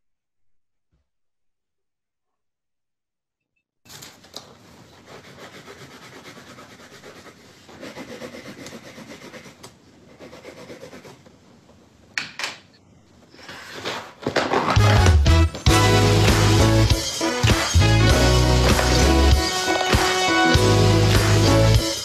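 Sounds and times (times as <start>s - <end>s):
paper rustling and sliding: 3.9s - 5.4s, 13.4s - 15.0s.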